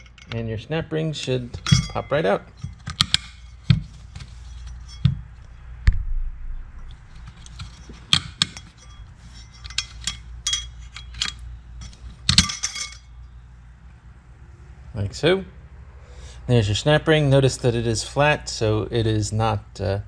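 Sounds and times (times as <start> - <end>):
metal clicks and clinks: 0.0 - 0.4, 1.5 - 3.8, 6.8 - 13.1.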